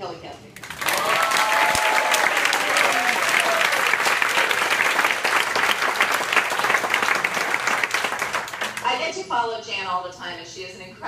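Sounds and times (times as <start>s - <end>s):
audience applauding: 0.6s - 8.8s.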